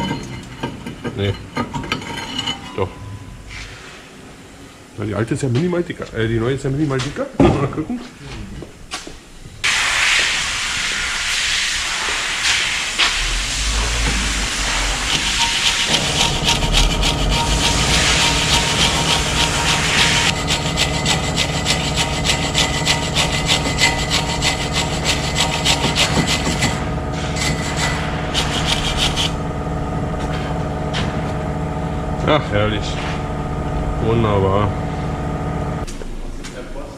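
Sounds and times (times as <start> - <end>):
steady engine-like hum: 0.0 - 5.1, 10.3 - 36.4
hand tool scraping metal: 13.0 - 29.3.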